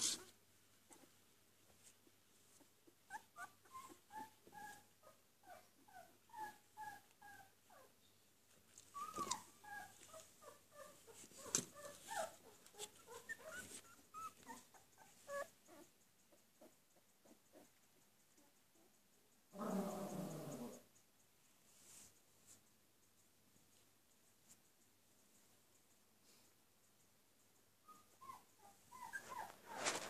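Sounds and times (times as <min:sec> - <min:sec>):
puppies whimpering and squeaking: 0:03.1 - 0:07.9, 0:08.8 - 0:15.9, 0:27.8 - 0:30.0.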